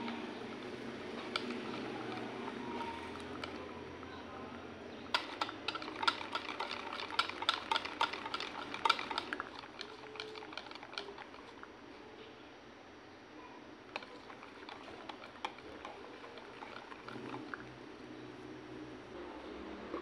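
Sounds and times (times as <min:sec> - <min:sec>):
whisk beating batter in a bowl: 0:00.0 - 0:04.0, 0:05.0 - 0:11.7, 0:14.0 - 0:17.7.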